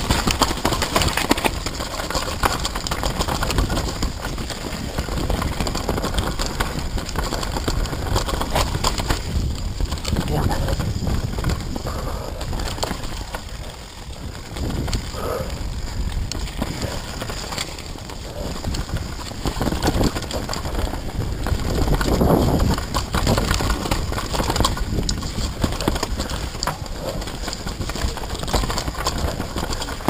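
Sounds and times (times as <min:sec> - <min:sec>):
bike chain and frame rattling: 0:00.0 - 0:30.0
tyres on loose dirt: 0:00.0 - 0:30.0
wind rushing on microphone: 0:00.0 - 0:30.0.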